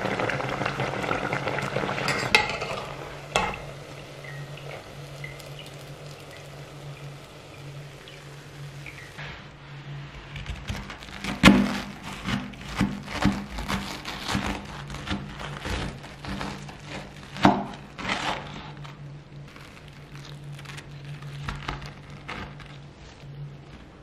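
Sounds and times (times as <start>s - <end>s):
steady low hum: 0.0s - 24.0s
utensils knocking and tapping: 2.1s - 3.6s.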